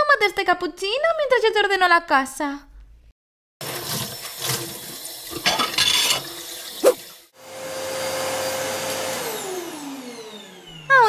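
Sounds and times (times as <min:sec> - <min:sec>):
tap water running into sink: 0:03.6 - 0:07.2
dishes clinking: 0:05.4 - 0:06.2
handheld vacuum cleaner whirring: 0:06.2 - 0:11.0.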